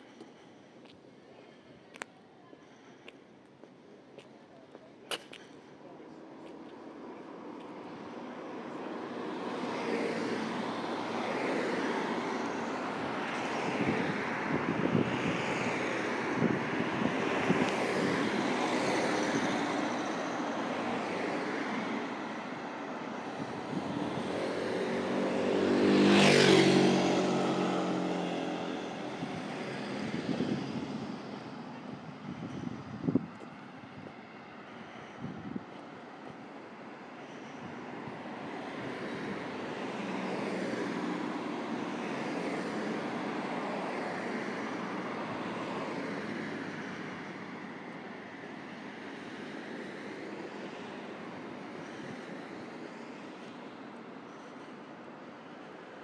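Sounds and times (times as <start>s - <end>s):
passing vehicle rushing: 23.4s - 33.2s.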